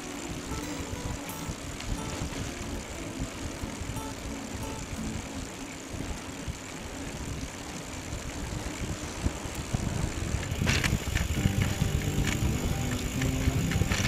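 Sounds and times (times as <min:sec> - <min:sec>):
wind buffeting microphone: 0:00.0 - 0:14.0
tyre rumble: 0:08.8 - 0:14.0
clatter: 0:10.4 - 0:14.0.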